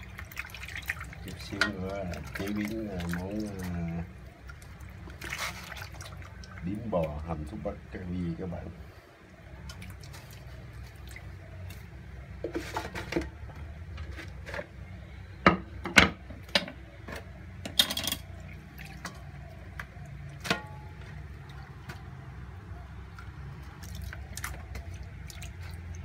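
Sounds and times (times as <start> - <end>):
water splashing in metal basin: 0.0 - 7.7, 9.4 - 11.9, 17.7 - 26.0
knocks and clinks against basin: 15.5 - 18.4, 19.0 - 21.2.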